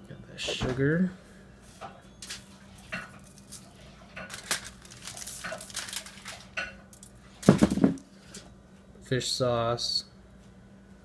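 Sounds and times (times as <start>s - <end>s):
bowl knocking on table: 7.5s - 8.0s.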